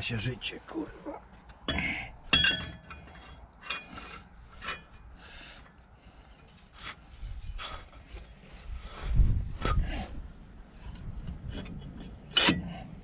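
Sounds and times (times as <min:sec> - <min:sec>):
metallic clink: 0:01.7 - 0:04.0
metal scraping on metal: 0:01.7 - 0:05.2.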